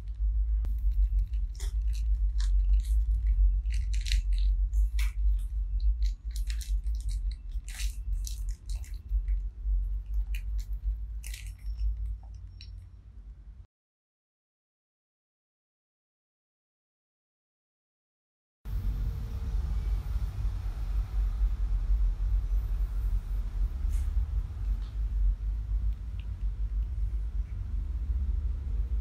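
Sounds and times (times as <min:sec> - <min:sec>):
steady low rumble: 0:00.0 - 0:13.7, 0:18.7 - 0:29.0
parchment paper crinkling: 0:00.7 - 0:12.8.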